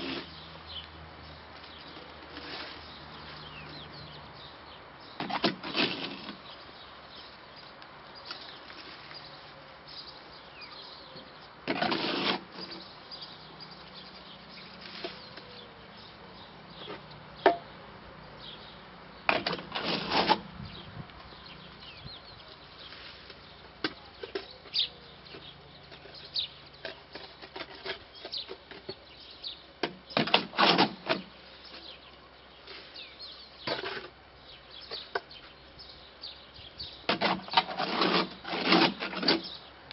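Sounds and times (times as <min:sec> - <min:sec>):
shovel scraping in metal wheelbarrow: 0:00.0 - 0:00.3, 0:01.9 - 0:03.6, 0:05.2 - 0:06.5, 0:11.6 - 0:12.8, 0:14.6 - 0:15.4, 0:19.3 - 0:20.5, 0:25.9 - 0:29.0, 0:29.8 - 0:31.9, 0:32.6 - 0:34.2, 0:37.1 - 0:39.6.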